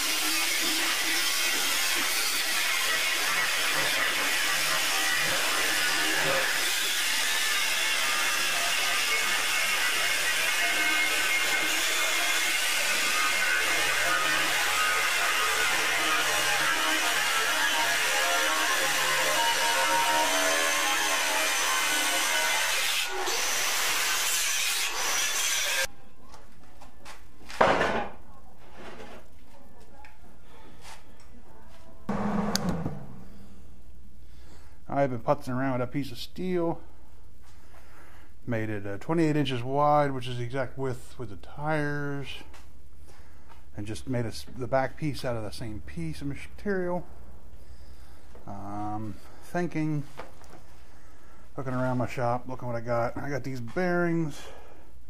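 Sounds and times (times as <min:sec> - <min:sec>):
angle grinder cutting steel: 0:00.0 - 0:25.9
loud clunk: 0:32.1 - 0:33.3.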